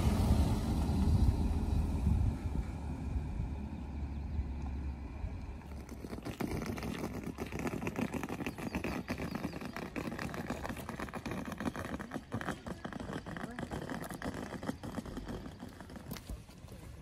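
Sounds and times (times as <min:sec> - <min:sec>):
footsteps on pavement: 0:05.6 - 0:17.0.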